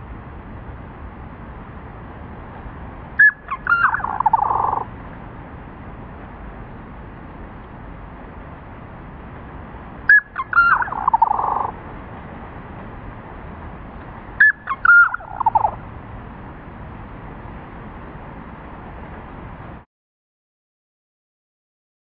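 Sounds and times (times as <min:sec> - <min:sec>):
slowed bird scolding call: 0:03.2 - 0:04.9, 0:10.1 - 0:11.8, 0:14.4 - 0:15.8.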